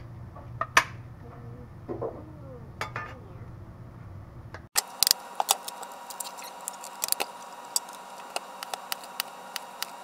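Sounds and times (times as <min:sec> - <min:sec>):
faint high hum: 0:01.1 - 0:10.0.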